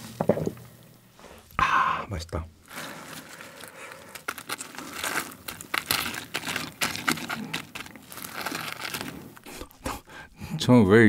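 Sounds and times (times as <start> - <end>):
fried chicken coating crackling: 2.7 - 9.8.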